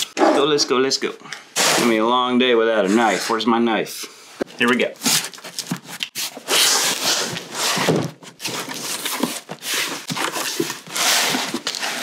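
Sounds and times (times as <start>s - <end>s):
box cutter slicing packing tape: 1.6s - 1.9s, 5.0s - 12.0s
contents scraping cardboard: 1.6s - 2.1s, 2.7s - 3.5s, 4.7s - 12.0s.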